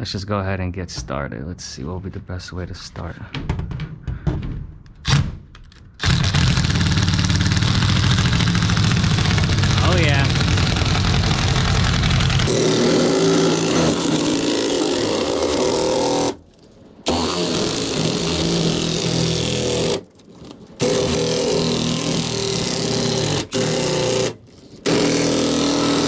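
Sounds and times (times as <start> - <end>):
drill shear cutting sheet metal: 6.0 - 16.4, 17.1 - 20.0, 20.8 - 26.0.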